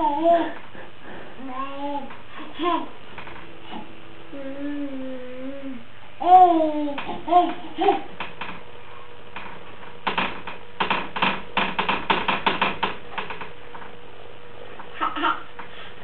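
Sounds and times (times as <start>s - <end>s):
hands knocking on wooden spindles: 10.0s - 13.5s.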